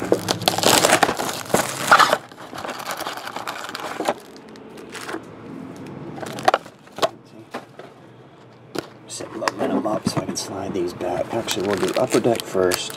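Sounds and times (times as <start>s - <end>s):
plastic shrink wrap crinkling: 0.0s - 5.2s, 6.2s - 7.0s, 11.2s - 12.9s.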